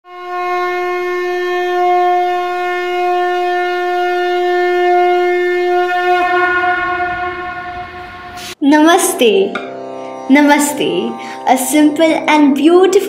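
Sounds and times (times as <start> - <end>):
conch shell blown: 0.0 - 8.6.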